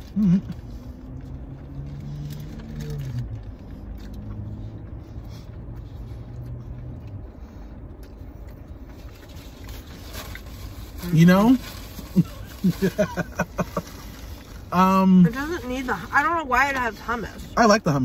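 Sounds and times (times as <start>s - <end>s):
person chewing: 0.0s - 11.0s
car idling rumble: 0.0s - 18.0s.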